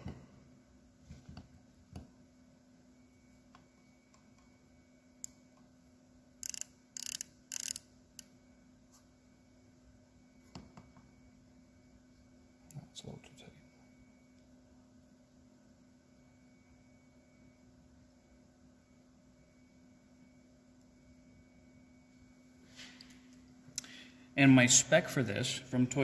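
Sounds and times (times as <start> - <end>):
micrometer ratchet clicking: 6.4 - 8.3.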